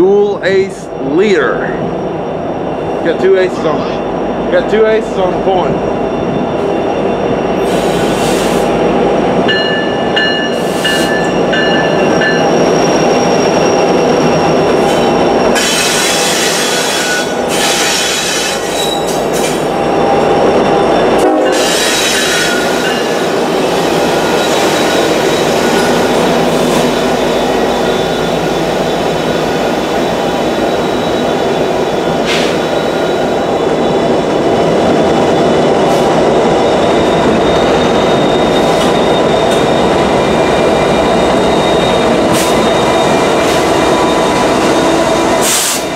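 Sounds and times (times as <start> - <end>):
diesel locomotive engines running: 0.0 - 45.9
wheels rumbling on rail: 0.0 - 45.9
high squealing tones: 9.6 - 45.9.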